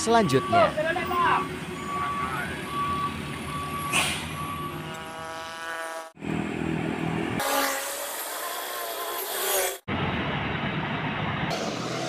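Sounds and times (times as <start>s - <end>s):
pitched tone: 0.0s - 5.6s
vehicle engines and traffic: 0.0s - 12.0s.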